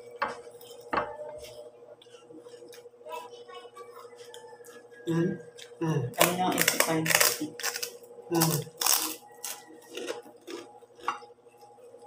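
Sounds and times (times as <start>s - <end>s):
pork rinds crunching while chewed: 5.6s - 11.7s.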